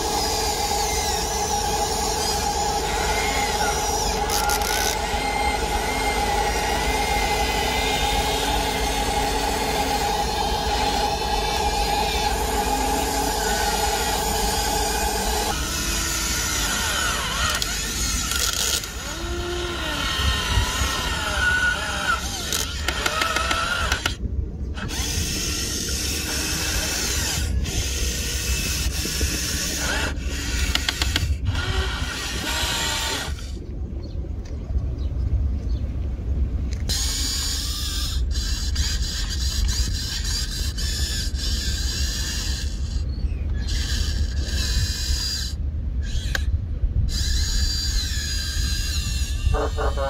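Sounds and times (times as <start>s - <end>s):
toy excavator motors whining: 0.0s - 33.6s, 36.7s - 50.0s
low rumble: 23.8s - 29.6s, 30.2s - 38.4s.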